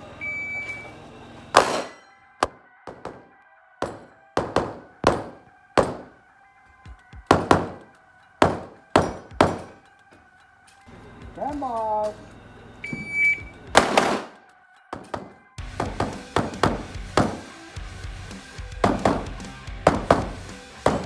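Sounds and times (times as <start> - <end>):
short high beep: 0.2 - 0.9, 12.8 - 13.6
pistol shots: 1.6 - 6.2, 7.3 - 9.8, 13.7 - 14.4.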